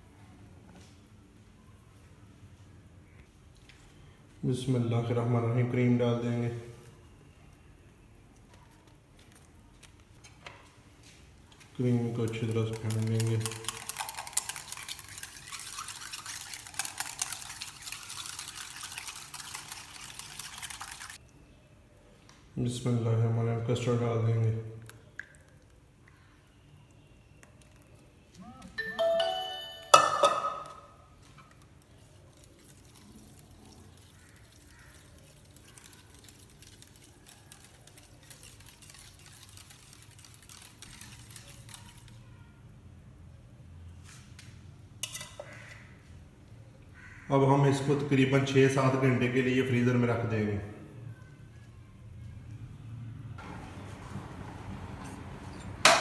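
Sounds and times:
whisk clicking against bowl: 0:12.3 - 0:21.2
whisk beating cream in bowl: 0:12.5 - 0:21.2, 0:32.4 - 0:42.0.

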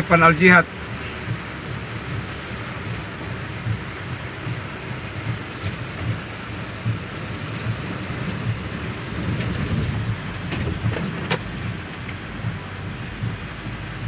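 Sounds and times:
car engine and tyre noise: 0:00.0 - 0:14.0
sharp clicks: 0:01.2 - 0:02.3, 0:09.2 - 0:13.4.

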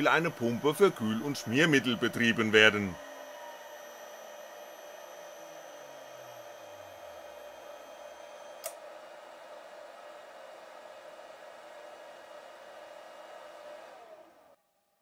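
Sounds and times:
spindle winding down: 0:00.0 - 0:14.6
relay click: 0:08.6 - 0:08.8.

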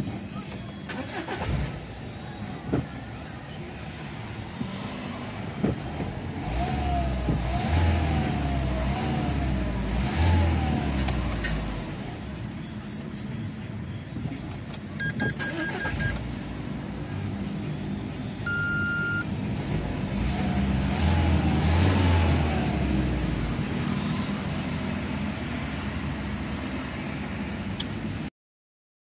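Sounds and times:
dashboard beeps: 0:15.0 - 0:16.2, 0:18.4 - 0:19.3.

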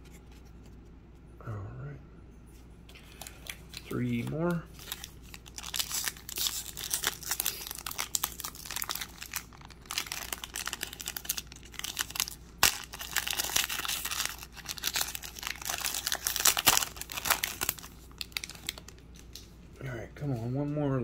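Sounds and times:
foil wrapper crinkling and tearing: 0:03.1 - 0:19.5.

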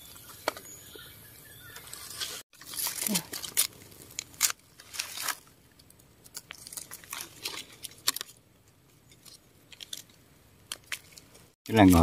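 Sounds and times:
small crunches: 0:01.8 - 0:11.6
leaf litter crackling and rustling: 0:02.5 - 0:05.6.

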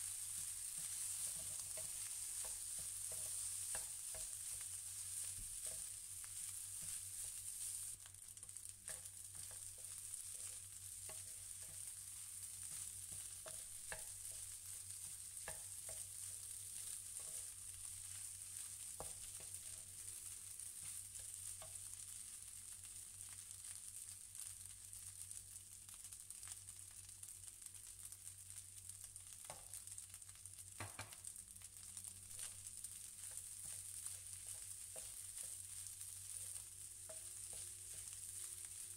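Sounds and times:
wooden spatula scraping a pan: 0:00.0 - 0:08.0, 0:08.8 - 0:21.8, 0:32.4 - 0:38.9
rice sizzling in a frying pan: 0:00.0 - 0:38.9.

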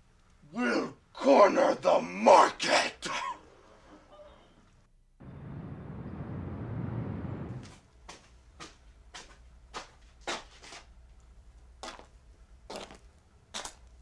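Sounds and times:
steady noise: 0:05.2 - 0:07.8.

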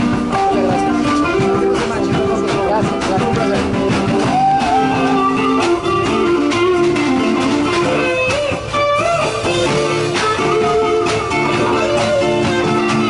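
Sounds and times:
electric guitar melody: 0:00.0 - 0:13.0
live band playing: 0:00.0 - 0:13.0.

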